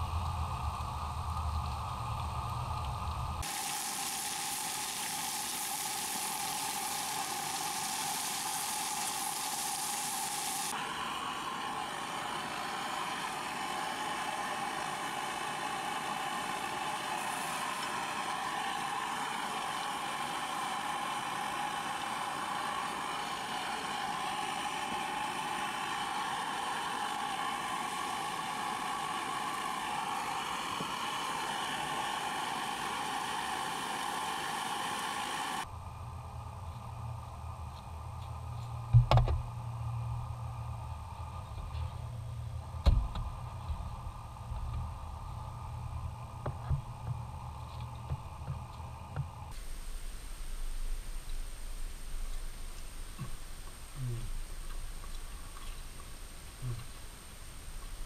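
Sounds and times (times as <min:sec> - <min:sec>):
vegetables sizzling in a pan: 0:03.4 - 0:35.7.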